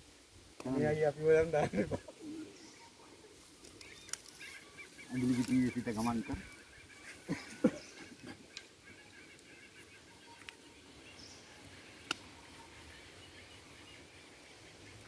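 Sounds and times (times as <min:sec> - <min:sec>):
faint bird calls: 0:01.7 - 0:15.0
soft clicks: 0:12.0 - 0:12.3.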